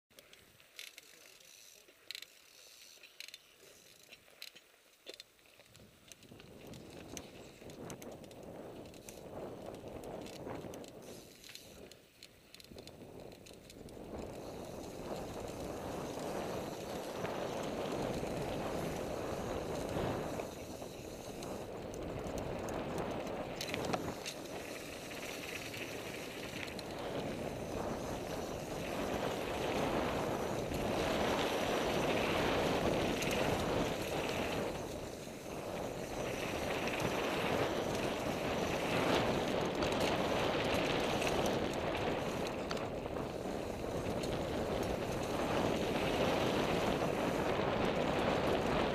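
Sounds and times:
bike clicks and rattles: 0:00.1 - 0:48.9
wind rush on microphone: 0:06.2 - 0:11.9, 0:12.7 - 0:48.9
tyres rolling over dirt: 0:14.2 - 0:48.9.

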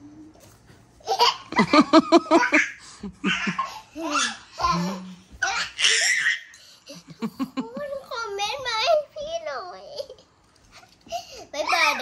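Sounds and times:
child laughing: 0:01.1 - 0:08.2.

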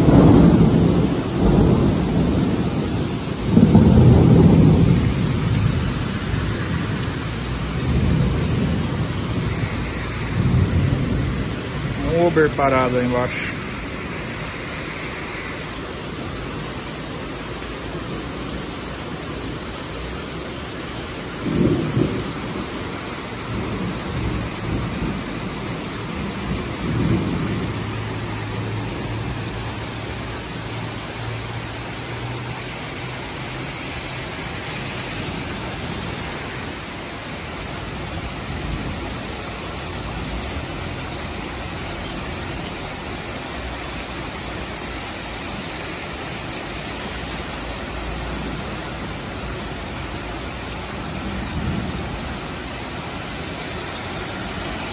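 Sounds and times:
thunder rumbling: 0:00.0 - 0:16.8, 0:21.2 - 0:37.0, 0:47.1 - 0:54.9
heavy rain pouring: 0:00.0 - 0:54.9.

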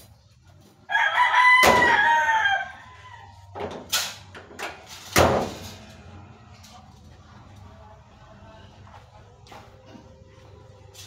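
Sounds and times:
rooster crowing: 0:00.9 - 0:03.6.

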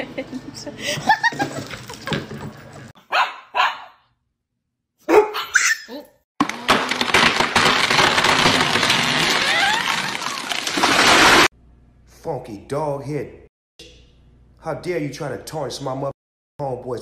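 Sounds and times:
dog barking: 0:03.0 - 0:04.1, 0:05.0 - 0:06.0.

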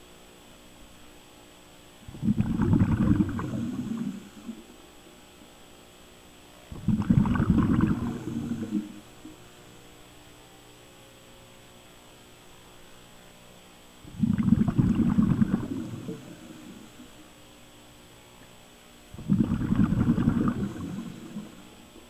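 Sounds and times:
underwater breath bubbling: 0:02.1 - 0:04.8, 0:06.7 - 0:09.4, 0:14.1 - 0:17.3, 0:19.2 - 0:22.0.

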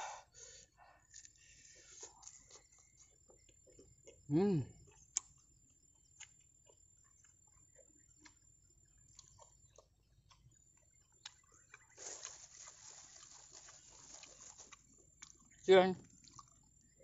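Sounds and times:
faint chewing: 0:00.4 - 0:17.0
plastic bag crinkling: 0:12.0 - 0:14.8.

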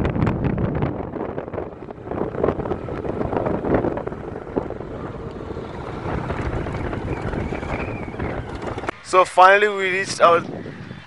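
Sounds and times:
wind buffeting microphone: 0:00.0 - 0:11.0
motorcycle engine running: 0:00.9 - 0:09.1.

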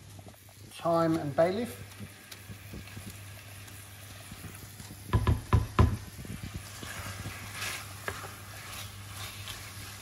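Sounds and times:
wooden spoon knocking on pan: 0:05.1 - 0:06.2.

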